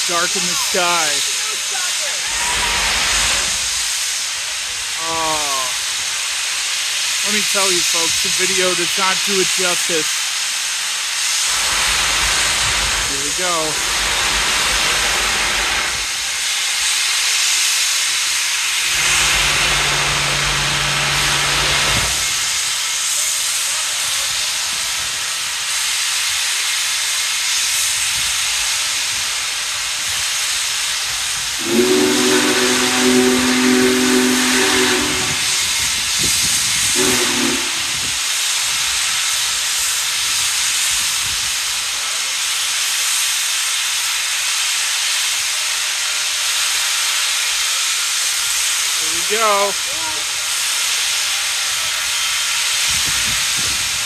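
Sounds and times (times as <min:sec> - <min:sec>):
chime steam whistle: 0:00.0 - 0:01.2, 0:13.2 - 0:13.8, 0:31.5 - 0:38.4
steam locomotive hissing: 0:00.0 - 0:54.0.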